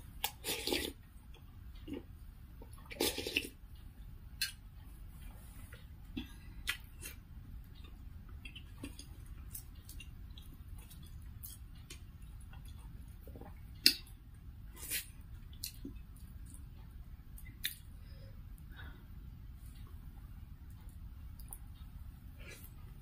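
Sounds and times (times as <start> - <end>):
slurping soup from a spoon: 0.3 - 1.0, 2.9 - 3.6.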